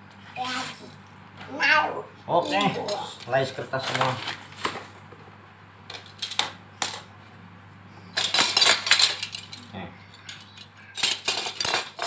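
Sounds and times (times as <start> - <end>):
paper scraps rustling with light clinks: 3.7 - 4.9.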